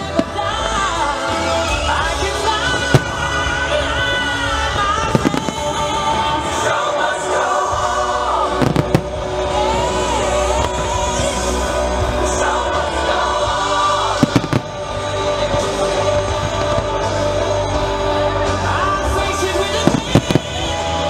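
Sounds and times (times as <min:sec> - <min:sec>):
music with singing voice: 0:00.0 - 0:21.0
firework bangs: 0:04.6 - 0:06.8, 0:08.5 - 0:11.2, 0:14.1 - 0:17.4, 0:19.7 - 0:20.9.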